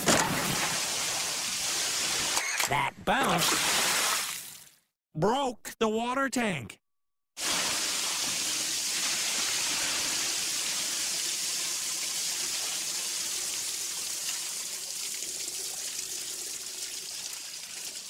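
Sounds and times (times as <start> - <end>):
water gushing and splashing: 0.0 - 2.4, 3.4 - 4.6, 7.4 - 15.5.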